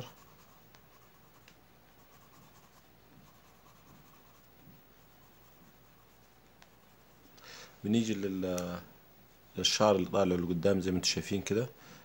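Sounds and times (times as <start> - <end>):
pencil scratching on paper: 0.0 - 7.3
light pencil ticks: 0.2 - 1.6, 6.4 - 6.8.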